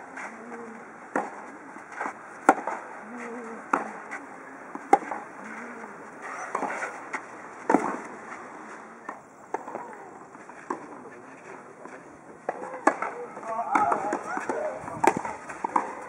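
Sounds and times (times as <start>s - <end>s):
tennis rackets hitting ball: 1.1s - 2.8s, 3.5s - 5.4s, 6.1s - 8.2s, 9.1s - 11.1s, 11.8s - 16.0s.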